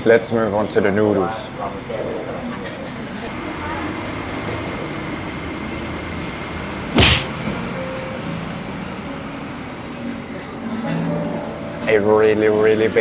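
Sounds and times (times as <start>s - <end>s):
steady background hum: 3.0s - 10.7s
quick whoosh: 7.0s - 7.4s.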